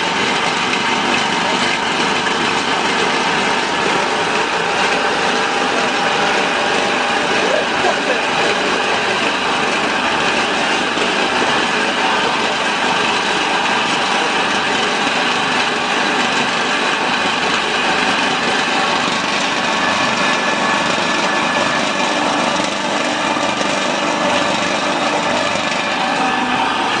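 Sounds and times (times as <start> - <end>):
pellet mill motor whining: 0.0 - 27.0.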